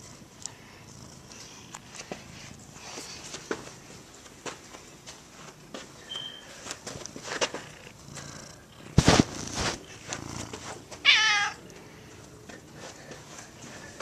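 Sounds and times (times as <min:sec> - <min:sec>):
cat meowing: 0:11.0 - 0:11.6.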